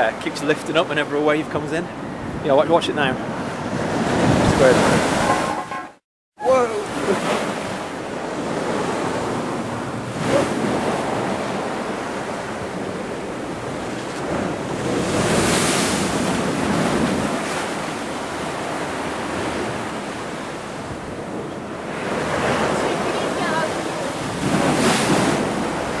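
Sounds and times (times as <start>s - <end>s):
wind buffeting microphone: 1.4s - 5.5s, 6.9s - 26.0s
waves breaking over a sea wall: 3.3s - 5.6s, 6.4s - 26.0s.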